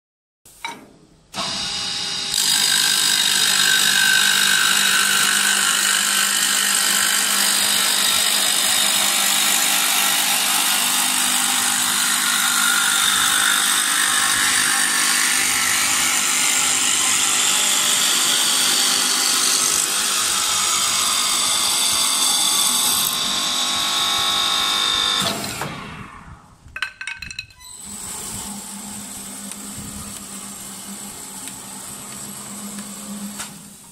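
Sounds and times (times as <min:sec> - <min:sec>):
wood lathe knife shaving wood: 0:01.4 - 0:25.2, 0:27.8 - 0:33.5.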